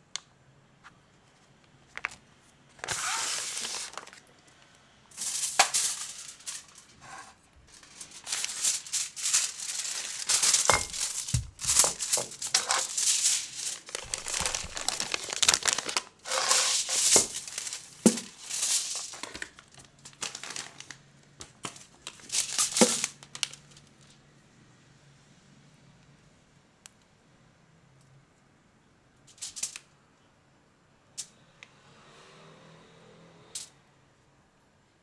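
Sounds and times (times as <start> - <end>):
foil wrapper crinkling: 2.8 - 4.3, 5.2 - 7.0, 7.7 - 23.8.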